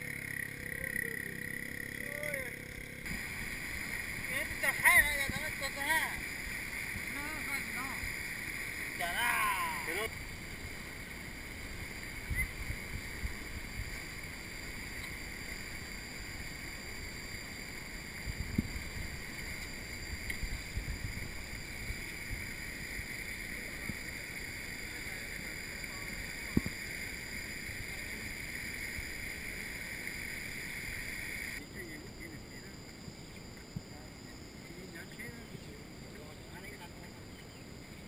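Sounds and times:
stream rushing through culvert: 3.1 - 11.9
wind buffeting microphone: 9.8 - 15.3, 17.7 - 23.0.

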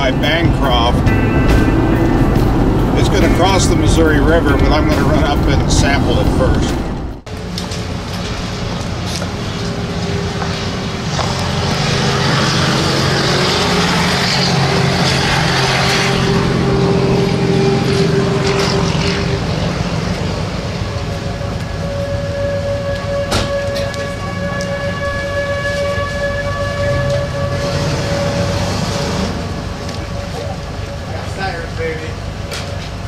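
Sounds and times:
wind buffeting microphone: 0.0 - 7.3
low droning tones: 0.0 - 33.0
high steady tone: 9.6 - 32.0.

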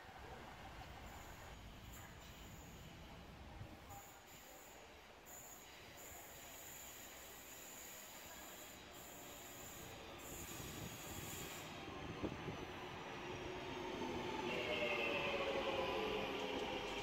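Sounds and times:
electric train approaching: 5.9 - 17.0.

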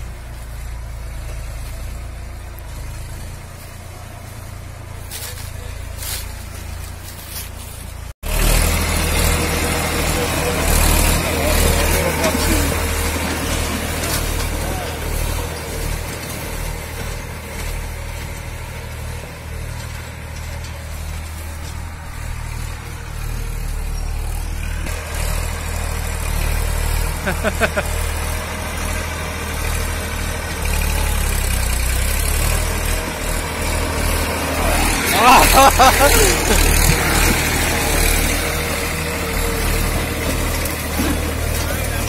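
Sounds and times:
tractor diesel engine running: 0.0 - 42.0.

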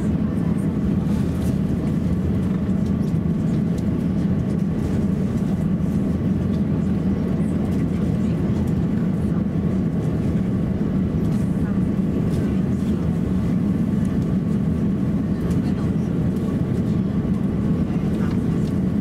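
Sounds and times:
aircraft cabin rumble: 0.0 - 19.0
faint steady engine whine: 0.0 - 19.0.

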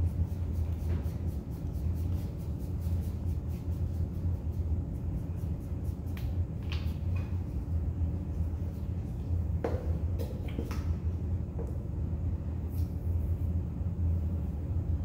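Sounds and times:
fingertips rubbing pastel on paper: 0.0 - 4.4
steady low hum: 0.0 - 15.0.

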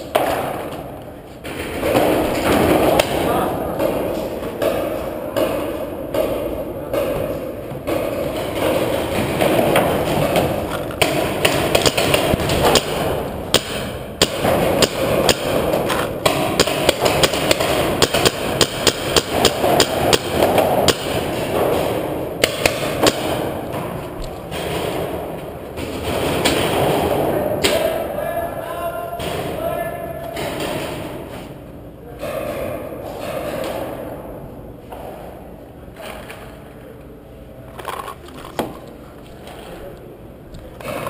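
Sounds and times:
paintball markers firing: 4.6 - 25.2.

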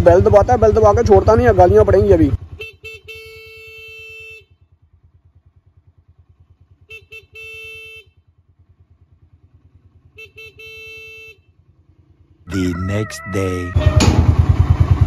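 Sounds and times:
motorcycle engine idling: 0.0 - 12.8, 13.7 - 15.0
motorcycle horn beeping: 2.4 - 4.8, 6.8 - 8.4, 9.9 - 11.8.

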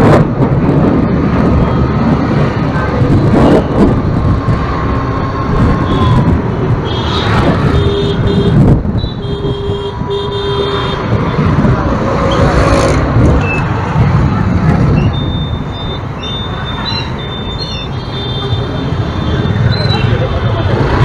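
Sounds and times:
vehicle wind and road noise: 0.0 - 21.0
car horn beeps: 6.8 - 11.1.

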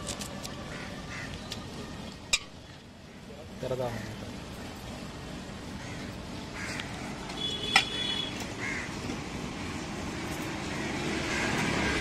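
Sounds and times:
street background: 0.0 - 12.0
crow cawing: 0.7 - 1.4, 5.8 - 7.0, 8.6 - 9.0, 10.7 - 12.0.

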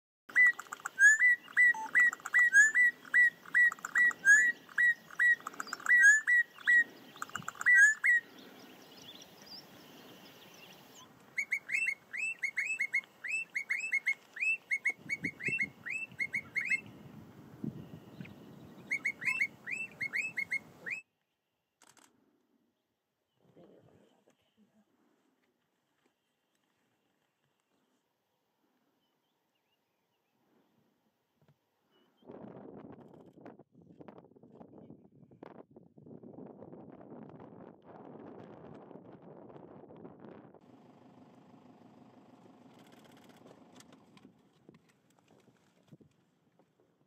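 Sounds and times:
bird singing whistled notes: 0.3 - 17.0, 17.7 - 21.1.

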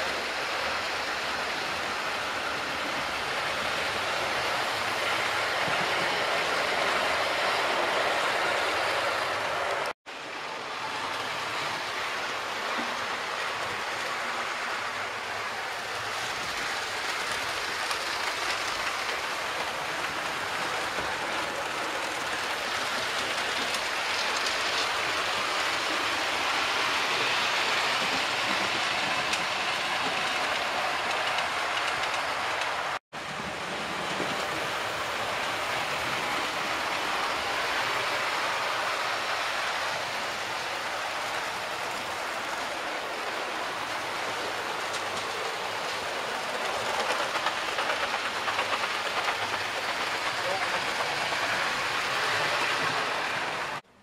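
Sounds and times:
model train running on track: 0.0 - 54.0.

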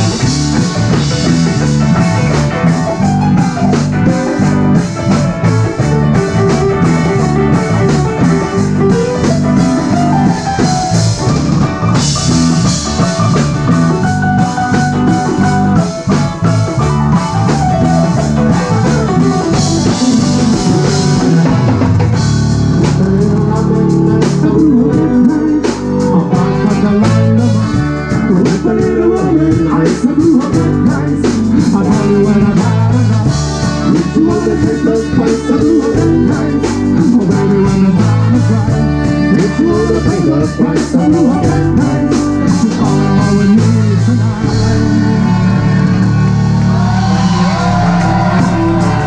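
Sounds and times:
drum kit: 0.0 - 49.0
electric guitar: 0.0 - 49.0
saxophone: 0.0 - 49.0
trumpet: 31.7 - 49.0.

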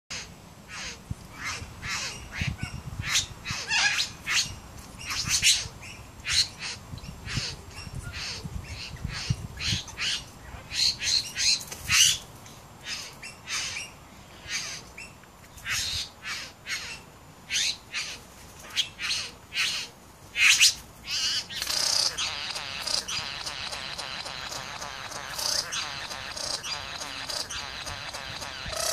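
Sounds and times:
bird harsh rasping calls: 0.1 - 4.5, 18.8 - 28.9
bird mimicking other birds: 20.5 - 28.9.

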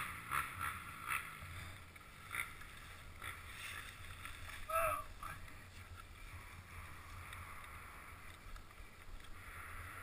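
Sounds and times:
faint wind rumble and hiss: 0.0 - 10.0.

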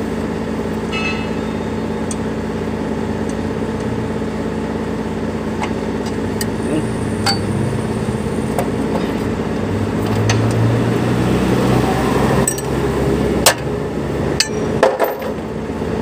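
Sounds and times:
engine idling: 0.0 - 10.8.

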